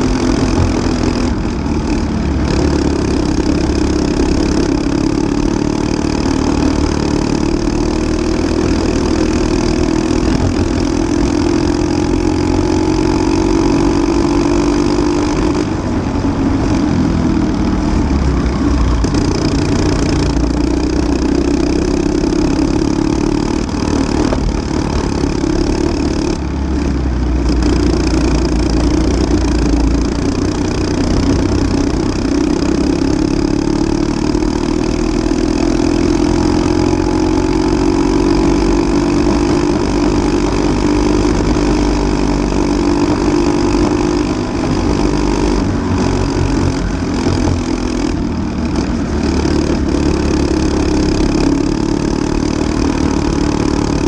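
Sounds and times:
kart engine racing: 0.0s - 54.0s.

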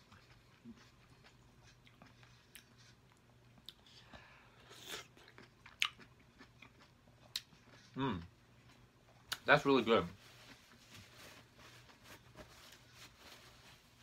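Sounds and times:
wet biting and chewing: 4.7s - 8.0s.

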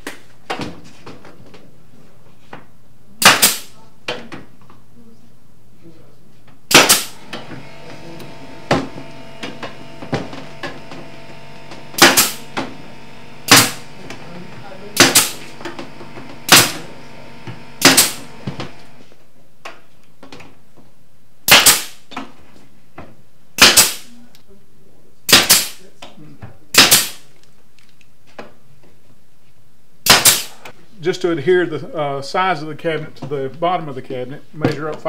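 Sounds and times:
pneumatic nailer firing into wood: 3.2s - 3.8s, 6.7s - 19.1s, 21.5s - 22.2s, 23.6s - 24.1s, 25.3s - 25.8s, 26.7s - 27.3s, 30.0s - 30.7s.

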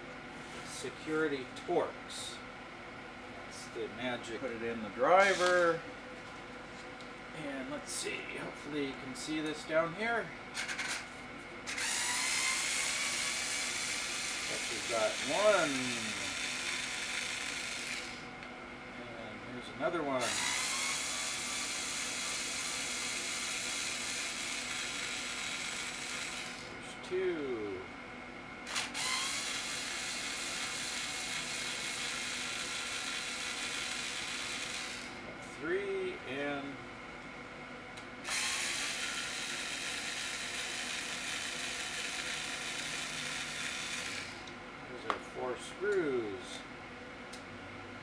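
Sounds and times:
cordless screwdriver whirring: 11.7s - 18.2s, 20.2s - 26.7s, 28.7s - 35.2s, 38.2s - 44.5s.

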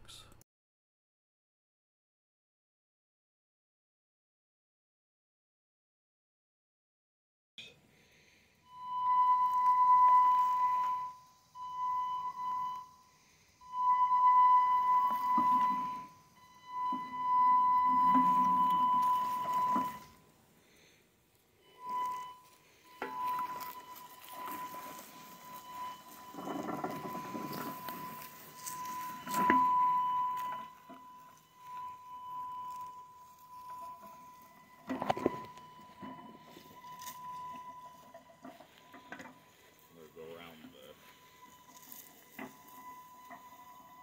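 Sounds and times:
electric motors whining: 13.7s - 20.4s, 21.6s - 44.0s
wheels rolling over grass: 13.9s - 20.3s, 21.6s - 44.0s.

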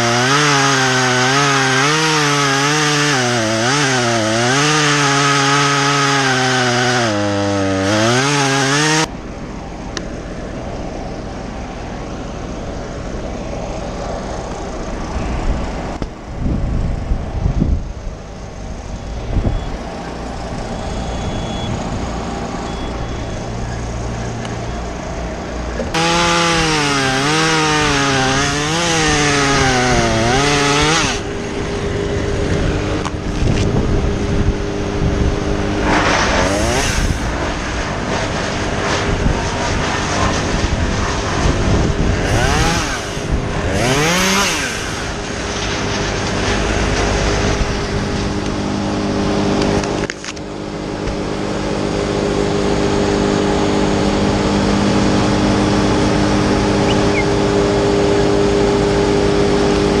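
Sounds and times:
chainsaw cutting wood: 0.0s - 9.1s, 25.8s - 31.4s, 35.6s - 40.5s, 41.9s - 48.6s
chainsaw revving: 0.0s - 9.1s, 25.8s - 50.1s.

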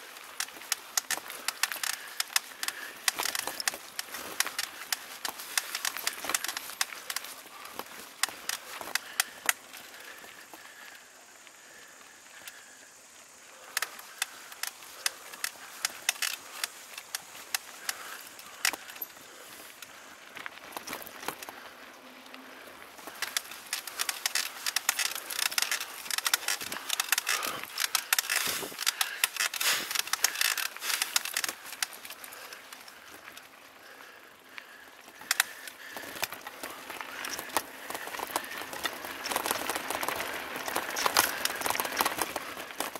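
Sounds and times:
mountain bike rattling and clicking: 0.0s - 42.9s.

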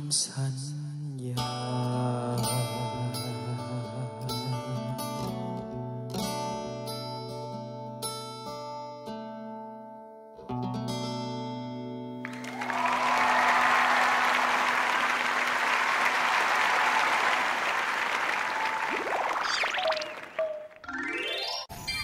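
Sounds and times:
applause: 12.2s - 20.8s
rising gliding sound effect: 18.4s - 21.7s.

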